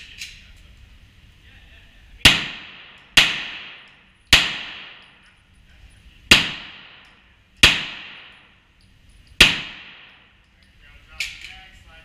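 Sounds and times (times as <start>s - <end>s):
pistol shots echoing indoors: 2.2s - 5.4s, 6.3s - 8.7s, 9.3s - 10.4s.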